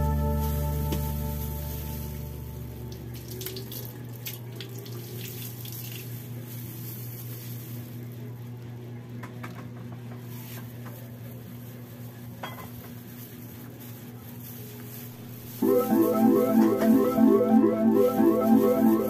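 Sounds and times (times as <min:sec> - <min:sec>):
small crackles: 0:13.0 - 0:15.9.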